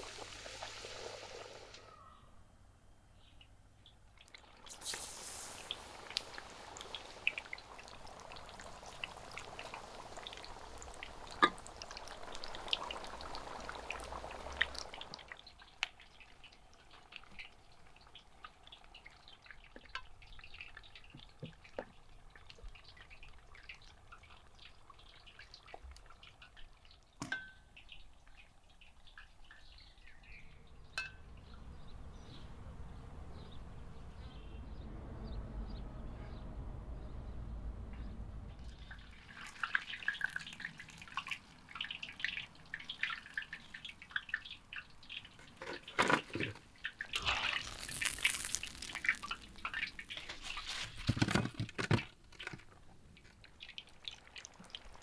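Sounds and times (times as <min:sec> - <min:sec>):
chicken sizzling in hot oil: 0:00.0 - 0:02.0, 0:04.4 - 0:19.3, 0:38.8 - 0:51.1, 0:53.5 - 0:55.0.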